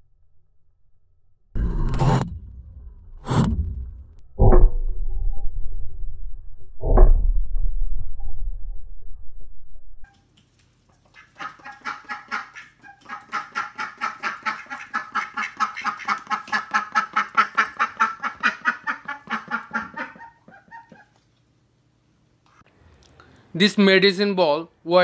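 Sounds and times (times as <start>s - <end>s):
ducks quacking: 11.1s - 21.1s.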